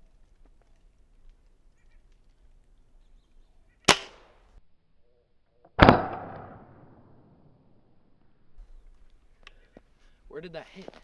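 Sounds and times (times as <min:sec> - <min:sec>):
air rifle cracks: 0:03.9 - 0:04.3.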